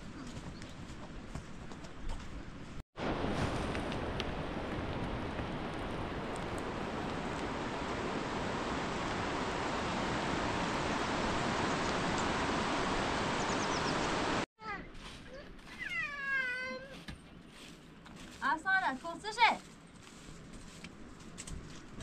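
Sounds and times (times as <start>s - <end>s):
river rushing over rocks: 3.0s - 14.4s.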